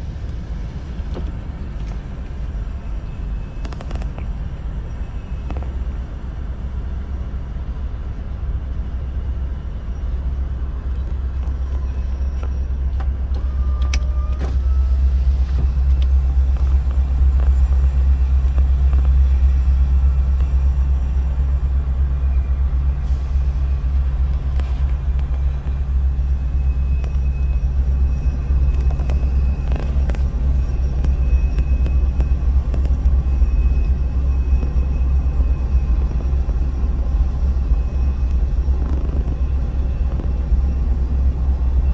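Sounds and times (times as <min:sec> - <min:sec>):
muffled freight train rumble: 0:00.0 - 0:41.9.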